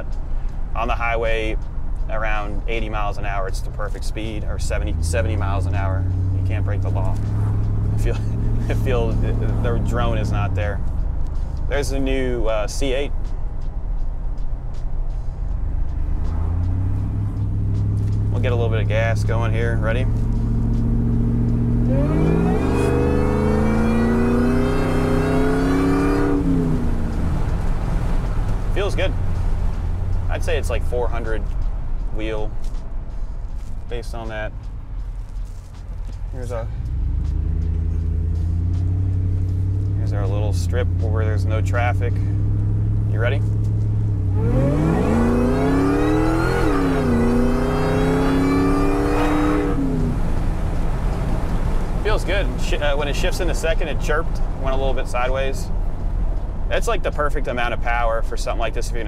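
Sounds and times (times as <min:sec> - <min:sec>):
engine accelerating hard: 0:04.5 - 0:12.3, 0:15.7 - 0:31.6, 0:36.3 - 0:57.8.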